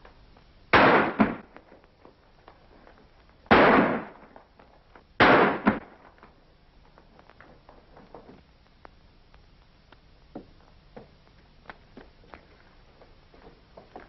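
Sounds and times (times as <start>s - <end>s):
gunshots with echo: 5.2s - 5.8s.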